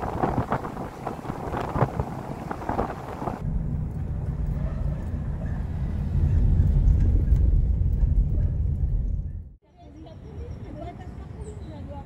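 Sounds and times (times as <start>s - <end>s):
car rumbling over cobblestones: 0.0s - 9.6s
wind and tyre clatter: 0.0s - 12.0s.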